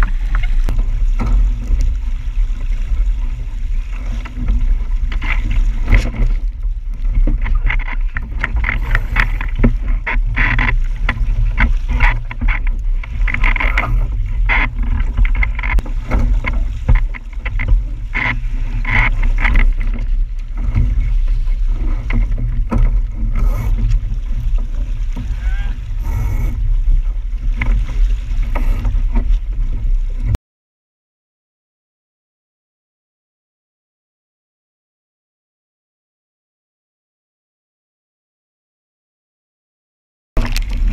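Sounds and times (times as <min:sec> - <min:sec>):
water splashing against hull: 0:00.0 - 0:30.4, 0:40.4 - 0:40.9
wind rumble: 0:00.0 - 0:30.4.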